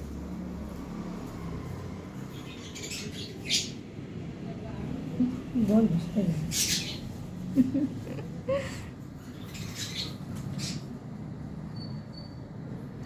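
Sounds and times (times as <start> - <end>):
parakeet squeaks and chirps: 2.2 - 3.8, 6.5 - 7.2, 9.2 - 11.0.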